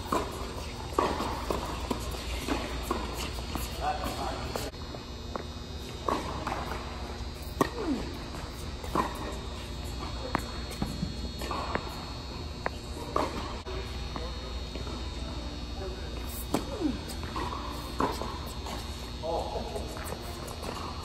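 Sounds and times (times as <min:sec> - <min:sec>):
tennis balls struck by rackets: 0:00.0 - 0:04.6, 0:05.3 - 0:13.5, 0:16.3 - 0:18.8.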